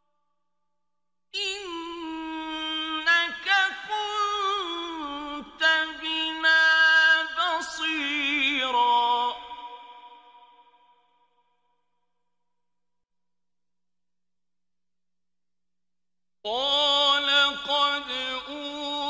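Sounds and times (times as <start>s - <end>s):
man chanting melodically: 16.5s - 19.0s.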